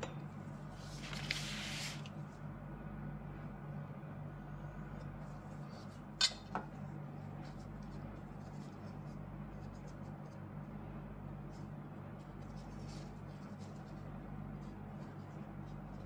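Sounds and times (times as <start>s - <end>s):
steady low hum: 0.0s - 16.0s
rustling of dough handling: 0.3s - 2.7s, 3.4s - 16.0s.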